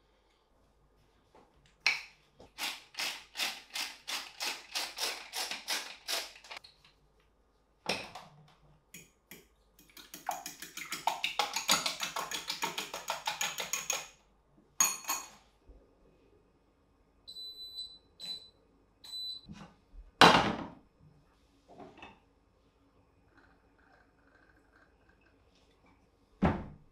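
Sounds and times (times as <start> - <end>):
salt grinder turning: 2.6 - 6.6
eggs beaten in glass bowl: 9.8 - 14.1.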